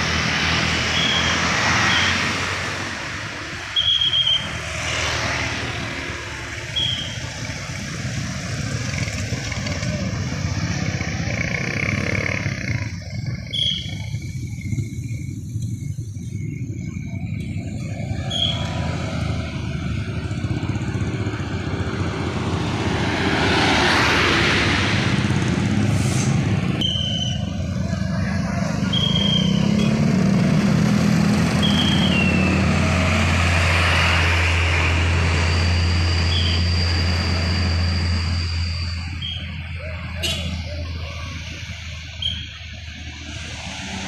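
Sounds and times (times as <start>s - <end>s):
low engine hum: 0.0s - 44.0s
vehicles passing: 0.0s - 44.0s.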